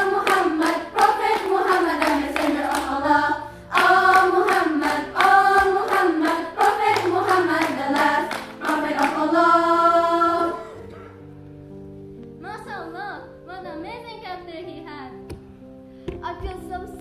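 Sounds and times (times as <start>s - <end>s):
girls' choir singing: 0.0s - 10.9s.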